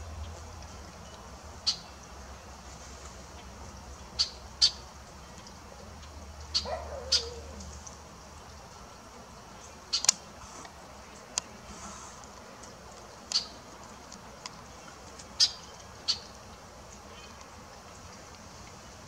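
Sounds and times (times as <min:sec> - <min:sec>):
hummingbird chip calls: 0:01.0 - 0:02.0, 0:04.1 - 0:04.9, 0:06.4 - 0:07.8, 0:09.6 - 0:10.6, 0:13.2 - 0:13.7, 0:14.6 - 0:17.8.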